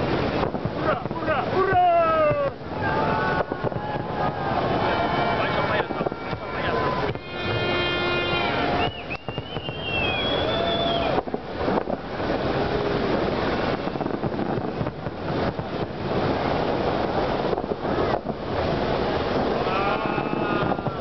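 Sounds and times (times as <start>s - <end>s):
fireworks bursting and crackling: 0.0s - 21.0s.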